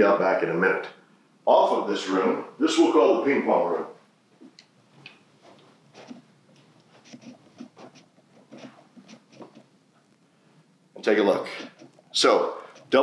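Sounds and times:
faint footsteps walking: 0:03.8 - 0:13.0.

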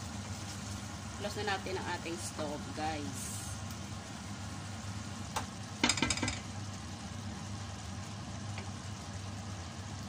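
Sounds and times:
sauce simmering: 0:00.0 - 0:05.8, 0:06.4 - 0:10.0
wooden spatula knocking on pot: 0:05.8 - 0:06.4.

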